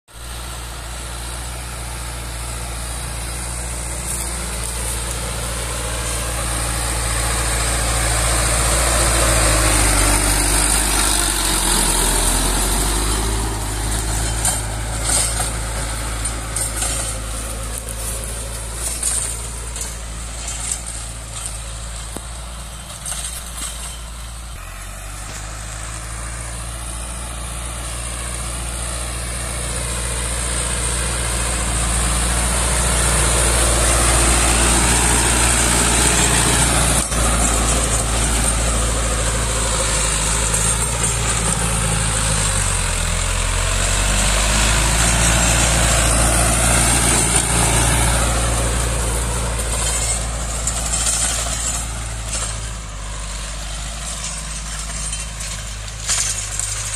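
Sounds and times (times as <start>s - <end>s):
tractor diesel engine running: 0.0s - 56.9s.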